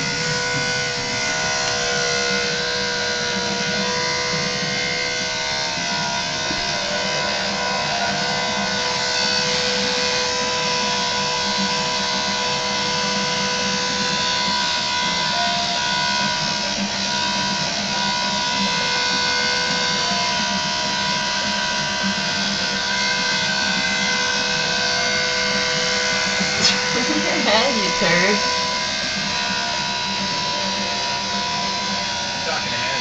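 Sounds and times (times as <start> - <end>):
electric hair clippers whining: 0.0 - 33.0.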